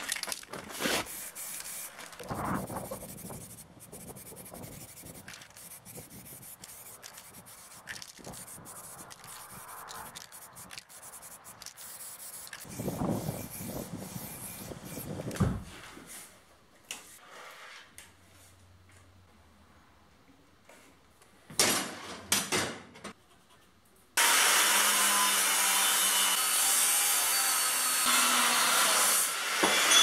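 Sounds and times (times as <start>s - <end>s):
handling noise: 0.0s - 14.0s
spray can hissing: 0.8s - 15.2s.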